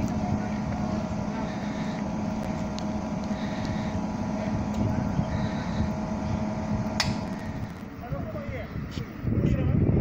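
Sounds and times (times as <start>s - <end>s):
electric locomotive humming: 0.0s - 9.4s
sharp click: 7.0s - 7.3s.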